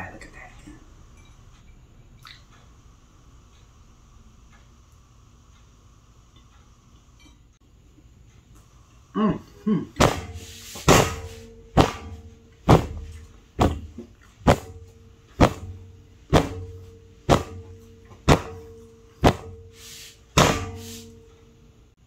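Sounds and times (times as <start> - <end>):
fist pounding tabletop: 10.0 - 14.8, 15.4 - 19.6, 20.4 - 20.9.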